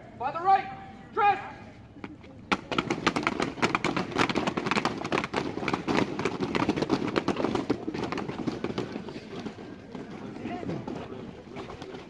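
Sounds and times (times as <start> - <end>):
boots stamping on hard ground: 2.5 - 11.0.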